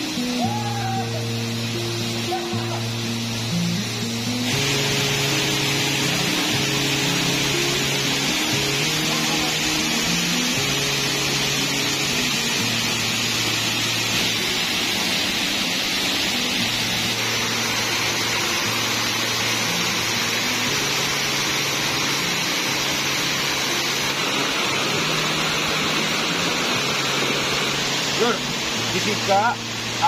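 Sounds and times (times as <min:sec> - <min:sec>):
soft music with low notes: 0:00.0 - 0:30.0
waterfall rushing: 0:00.0 - 0:30.0.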